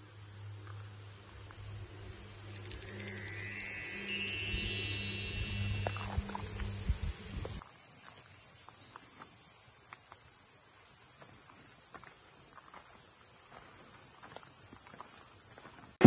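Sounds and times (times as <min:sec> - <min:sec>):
high-pitched insect chorus: 0:00.0 - 0:15.8
footsteps crunching on gravel: 0:11.2 - 0:16.0.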